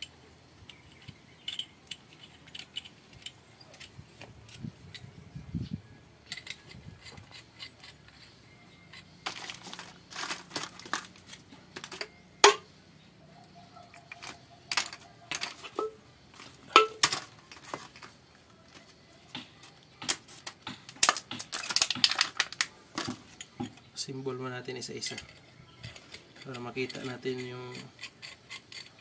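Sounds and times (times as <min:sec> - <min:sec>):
metal pipe parts clinking: 0:00.7 - 0:05.2, 0:06.2 - 0:12.7, 0:13.8 - 0:18.1, 0:20.9 - 0:24.0, 0:24.8 - 0:29.0.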